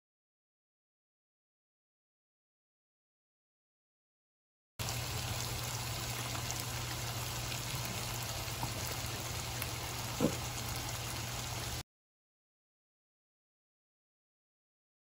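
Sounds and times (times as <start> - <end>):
chicken sizzling in frying pan: 4.8 - 11.8.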